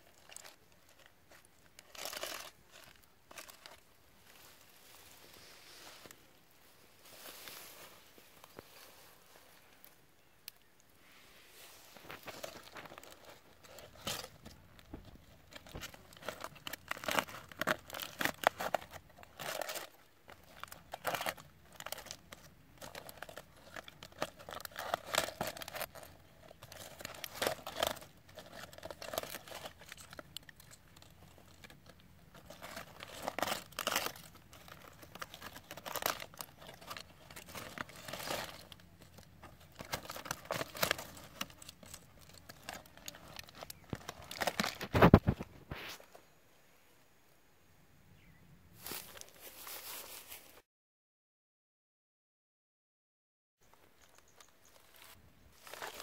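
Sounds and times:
aluminium foil crinkling: 0.0 - 6.2, 11.6 - 46.1, 54.0 - 56.0.

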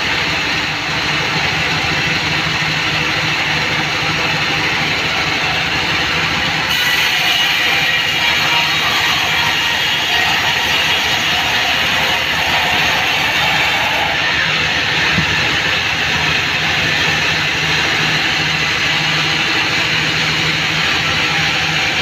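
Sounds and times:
band sawmill cutting log: 0.0 - 22.0.

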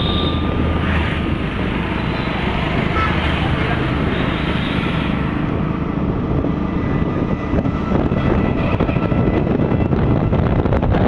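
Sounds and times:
scooter road noise rumble: 0.0 - 11.0
wind buffeting microphone: 0.0 - 11.0.

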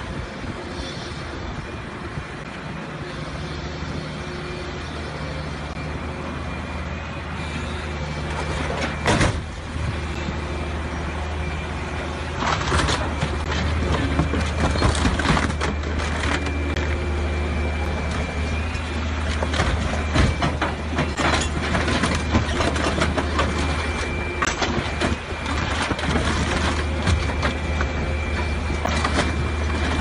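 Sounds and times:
diesel engine running: 0.0 - 30.0
car bodywork cracking and crunching: 12.4 - 16.6, 19.4 - 28.0.

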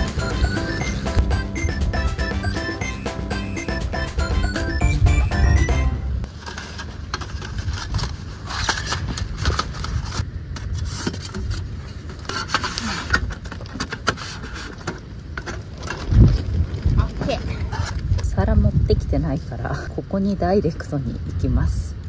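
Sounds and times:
wind rumbling on microphone: 15.0 - 22.0.

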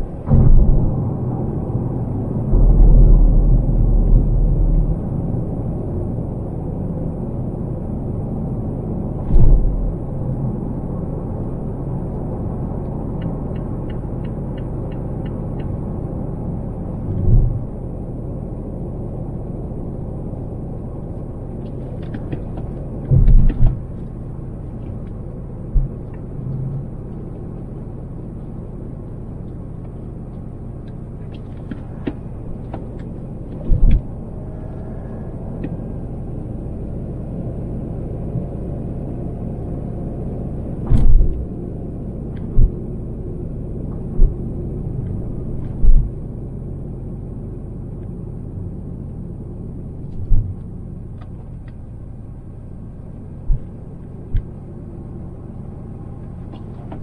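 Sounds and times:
low thumps: 0.0 - 6.5, 17.1 - 17.8, 24.8 - 26.4, 44.0 - 44.6, 53.4 - 54.5
road and tyre noise in car: 0.0 - 57.0.

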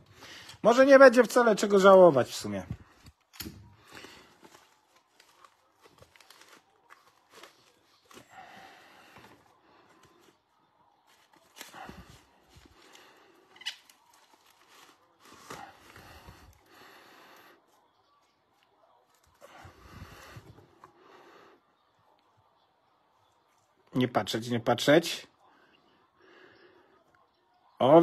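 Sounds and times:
rustling and handling noises: 0.0 - 21.2.

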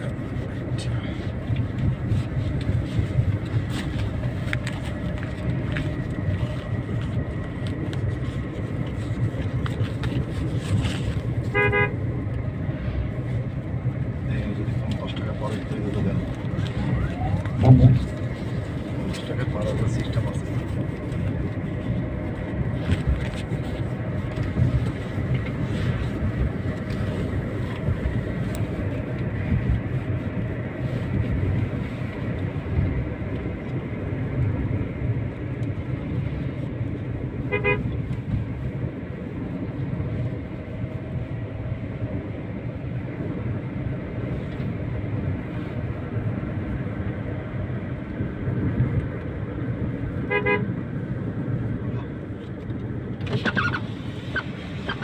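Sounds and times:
road and engine rumble in car: 0.0 - 55.0
short vehicle horn toot: 11.5 - 12.0, 37.5 - 37.8, 50.3 - 50.7.

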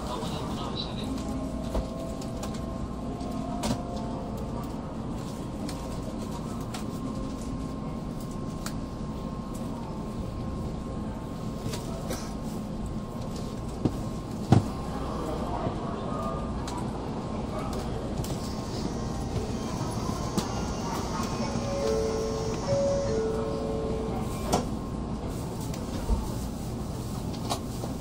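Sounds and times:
low train hum: 0.0 - 28.0
faint high tone: 19.6 - 24.4.

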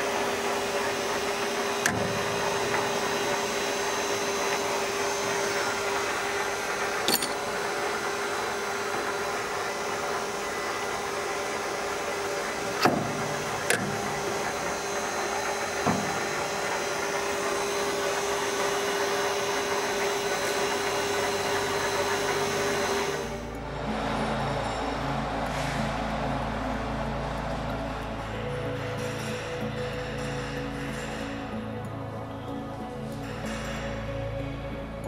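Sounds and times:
lathe motor and gear whine: 0.0 - 35.0
sharp metallic clicks and knocks: 7.0 - 7.6, 12.7 - 17.3.

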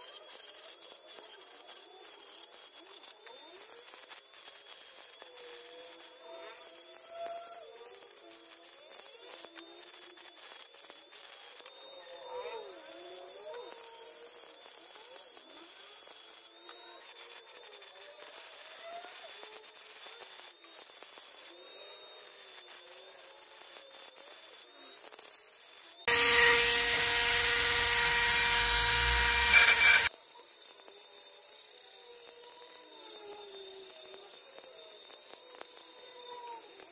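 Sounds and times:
rotary tool grinding shell: 26.1 - 30.1.

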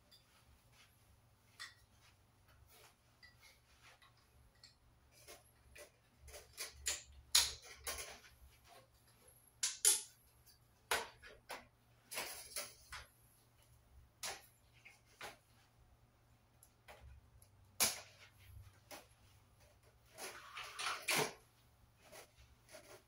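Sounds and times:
metal rack parts clicking: 12.1 - 13.1.

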